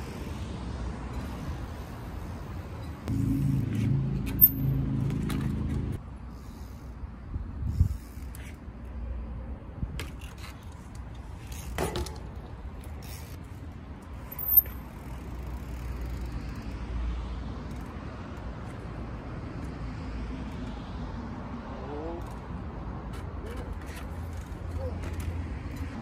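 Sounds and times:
sharp high squeak: 2.8s - 4.9s
steady low rumble: 3.0s - 6.0s
bike knocks and clicks: 9.9s - 13.4s.

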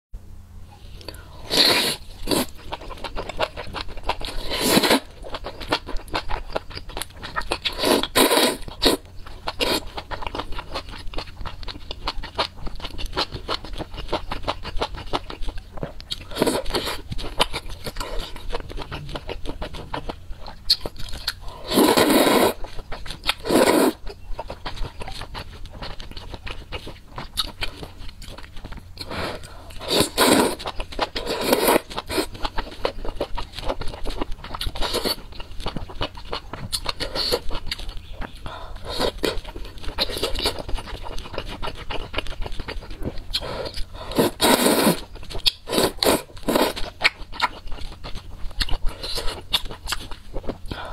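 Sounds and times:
loud noodle slurps: 1.5s - 2.5s, 4.4s - 5.1s, 7.8s - 9.0s, 21.6s - 22.6s, 23.4s - 24.0s, 29.1s - 30.6s, 44.1s - 45.1s
wet chewing and smacking: 2.0s - 50.9s.

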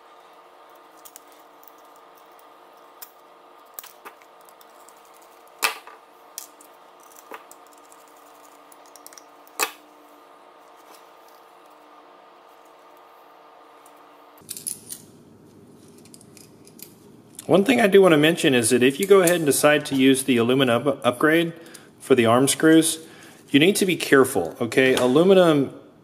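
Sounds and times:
metal parts clicking and tapping: 3.0s - 9.7s.

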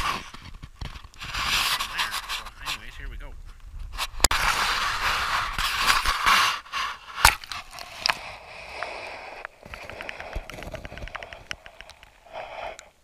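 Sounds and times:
handling scrapes: 0.0s - 3.0s, 3.8s - 8.4s
muffled underwater clicks: 7.2s - 12.9s.

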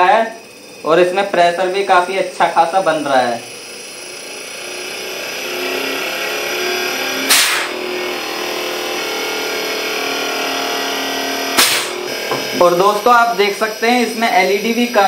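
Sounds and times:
compressor whine and hum: 0.0s - 15.0s
loud short hisses: 7.3s - 7.8s, 11.6s - 12.0s.

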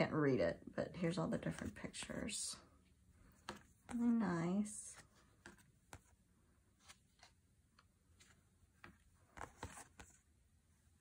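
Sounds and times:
cards shuffled clicking and tapping: 3.2s - 4.2s, 4.9s - 10.3s.

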